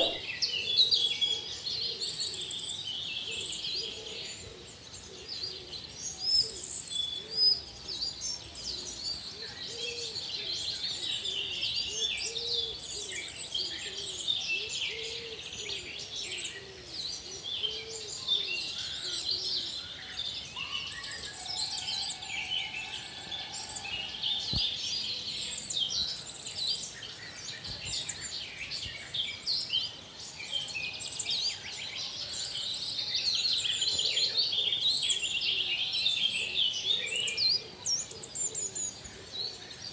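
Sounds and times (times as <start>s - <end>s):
lower repeated bird call: 0.0s - 5.8s
chorus of birds chirping: 0.0s - 39.9s.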